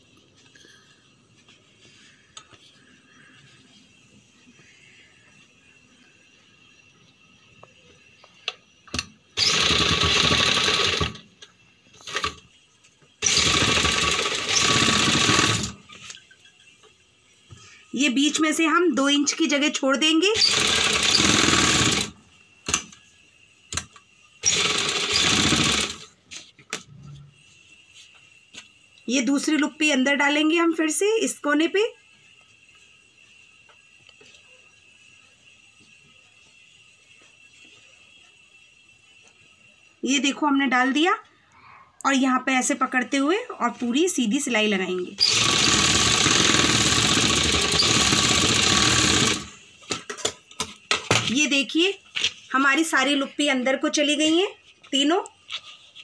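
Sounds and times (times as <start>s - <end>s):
sewing machine stitching: 9.4s - 11.2s, 12.0s - 12.4s, 13.2s - 15.8s, 20.4s - 22.1s, 24.4s - 26.0s, 45.2s - 49.5s.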